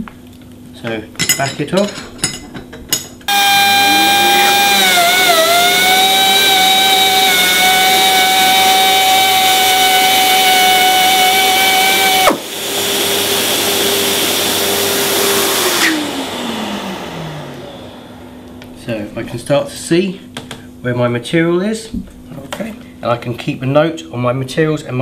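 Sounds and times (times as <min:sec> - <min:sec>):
air sanding tool whining: 0:03.3 - 0:18.6
vacuum dust extractor hiss: 0:03.3 - 0:19.0.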